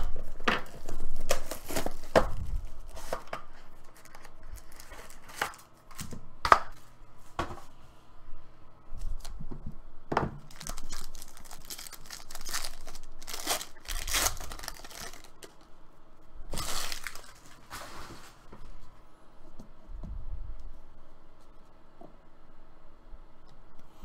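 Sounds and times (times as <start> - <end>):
plastic shrink wrap tearing: 10.5 - 15.6, 16.5 - 17.6.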